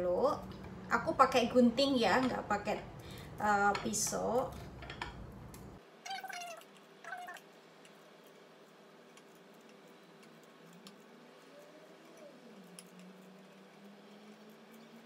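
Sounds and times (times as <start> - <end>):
high-pitched calls: 6.1 - 7.4.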